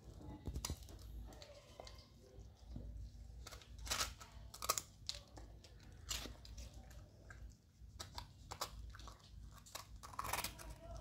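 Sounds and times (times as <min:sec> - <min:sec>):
puppy crunching rusk: 0:03.4 - 0:11.0.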